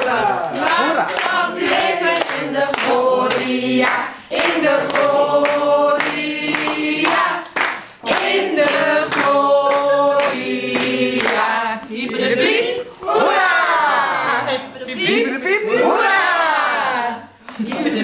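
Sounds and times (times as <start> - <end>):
hands clapping: 0.0 - 12.3
group singing birthday song: 0.0 - 18.0.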